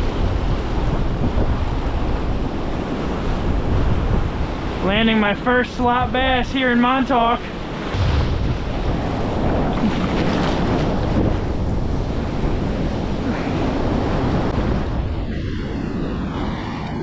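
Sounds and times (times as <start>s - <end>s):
ocean surf breaking: 0.0s - 17.0s
wind buffeting microphone: 0.0s - 17.0s.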